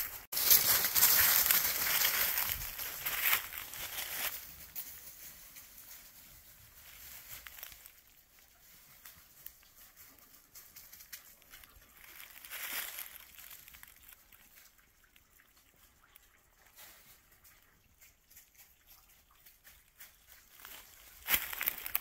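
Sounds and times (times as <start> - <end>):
footsteps crunching dry leaves: 0.1 - 5.2, 5.8 - 9.7, 11.2 - 14.4, 20.2 - 22.0.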